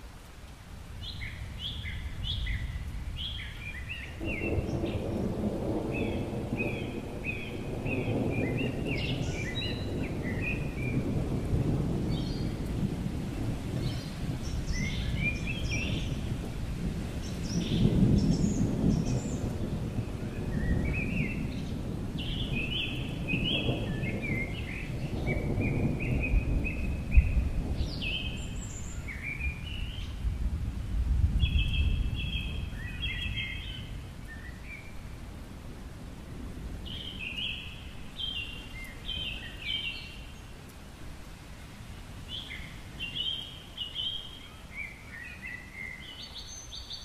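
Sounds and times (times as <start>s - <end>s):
rain falling: 0.0s - 47.0s
birds chirping: 1.0s - 11.2s
rolling thunder: 4.1s - 34.8s.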